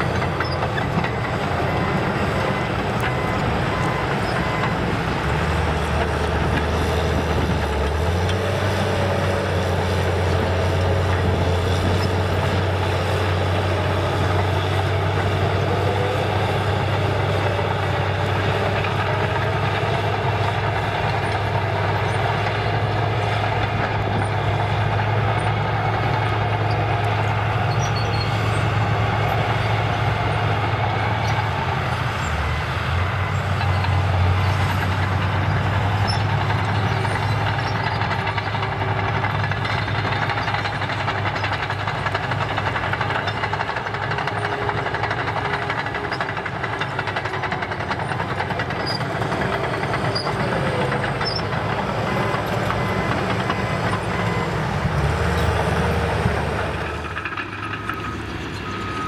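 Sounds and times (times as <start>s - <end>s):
bulldozer diesel engine under load: 0.0s - 59.0s
steel tracks clattering: 33.6s - 59.0s.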